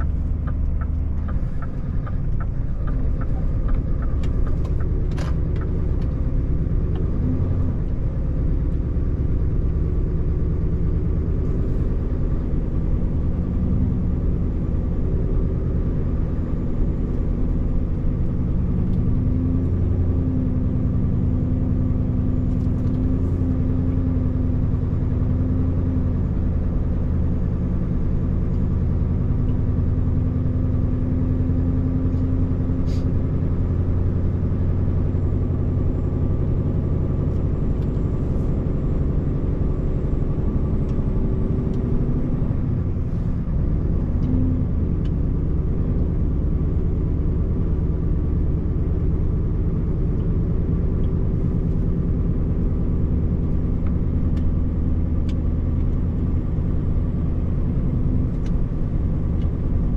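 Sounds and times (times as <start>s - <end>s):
tyre and road noise: 0.0s - 19.8s
truck diesel engine drone: 0.0s - 59.9s.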